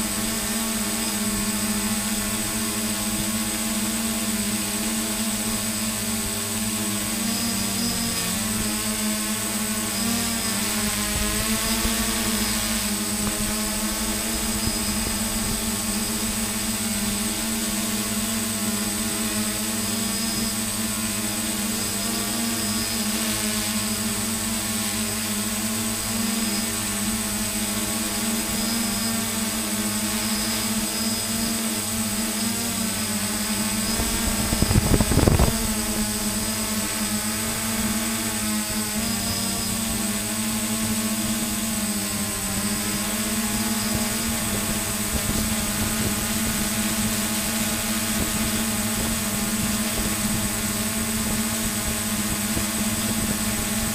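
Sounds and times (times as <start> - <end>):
drone propellers humming: 0.0 - 53.9.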